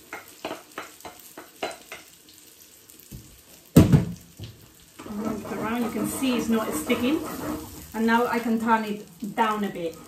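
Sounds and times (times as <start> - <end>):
faint sizzle: 0.0 - 10.0
wooden spoon scraping glass bowl: 5.0 - 8.3.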